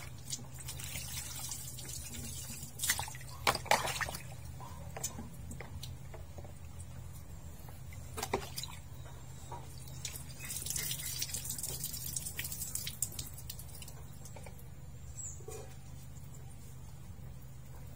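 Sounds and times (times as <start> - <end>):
water pouring and splashing: 0.0 - 6.9, 9.7 - 14.7.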